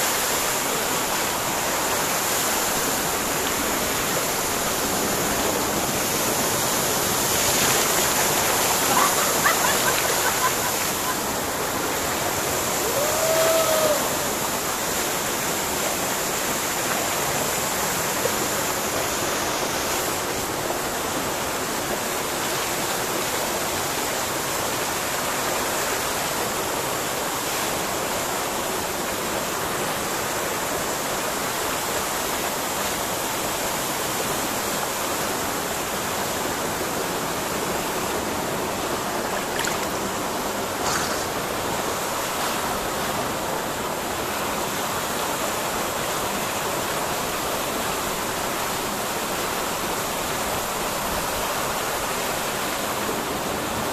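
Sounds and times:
waterfall rushing: 0.0s - 53.9s.

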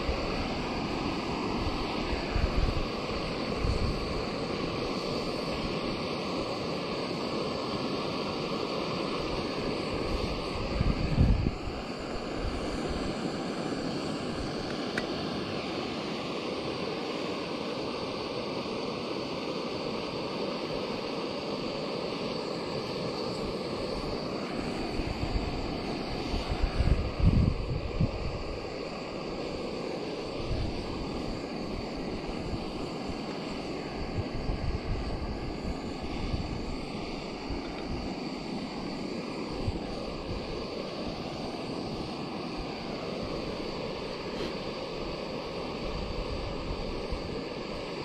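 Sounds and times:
wind buffeting microphone: 0.0s - 4.8s, 9.9s - 13.3s, 24.0s - 28.8s, 30.4s - 40.7s
gas stove hissing: 0.0s - 48.0s.

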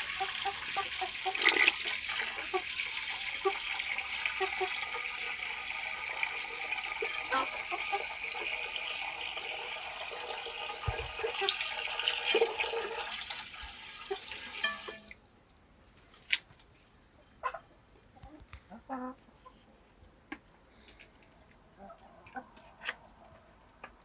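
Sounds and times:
water pouring into metal bowl: 0.0s - 15.2s.

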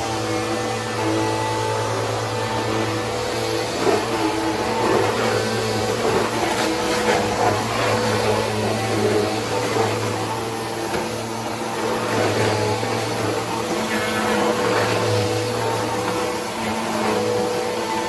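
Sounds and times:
vacuum cleaner running: 0.0s - 18.0s.

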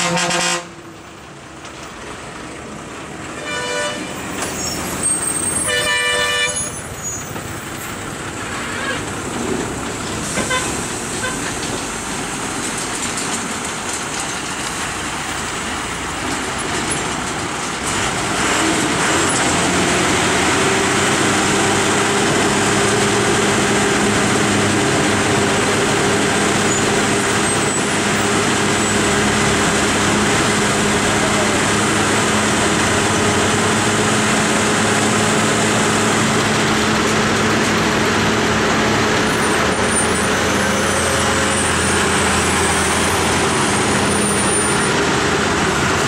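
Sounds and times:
truck engines running: 0.0s - 46.0s
vehicles passing: 0.0s - 46.0s.

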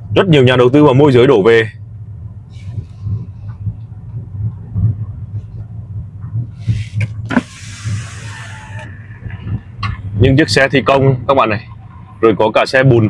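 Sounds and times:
car road noise rumble: 0.0s - 13.0s
electric car window winding down: 7.2s - 8.9s.

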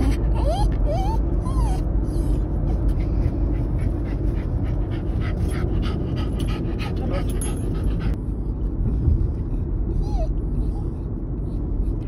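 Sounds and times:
low rumble of car: 0.0s - 12.0s
dog panting quickly: 2.3s - 8.2s.

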